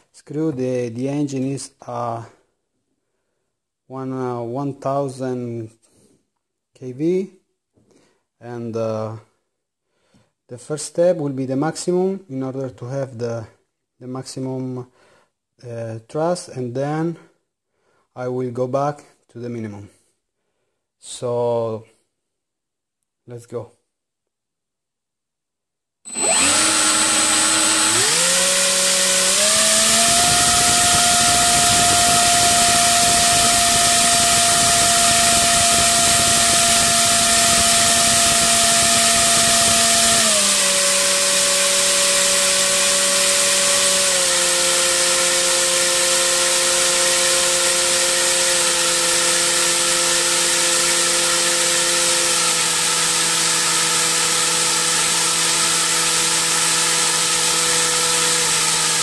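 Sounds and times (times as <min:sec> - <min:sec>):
electric motor and propeller whine: 0:26.1 - 0:55.3.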